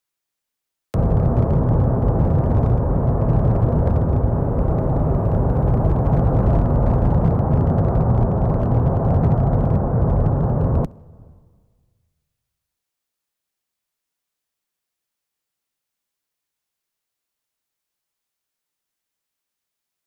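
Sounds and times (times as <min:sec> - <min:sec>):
volcano erupting rumble: 0:01.0 - 0:11.2.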